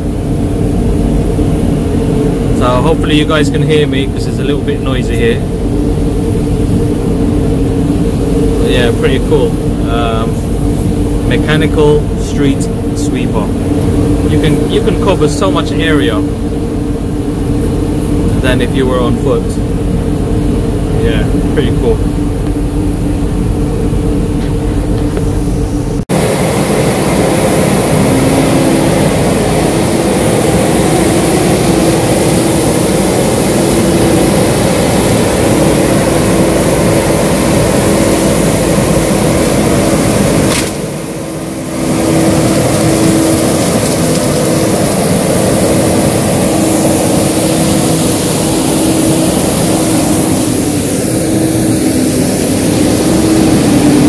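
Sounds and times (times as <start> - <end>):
street sweeper running: 0.0 - 54.0.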